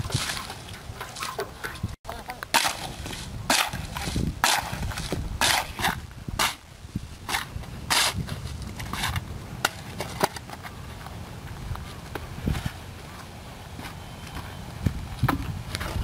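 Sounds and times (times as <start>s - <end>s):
shovel scraping wet earth and gravel: 0.0s - 1.9s, 2.5s - 10.5s.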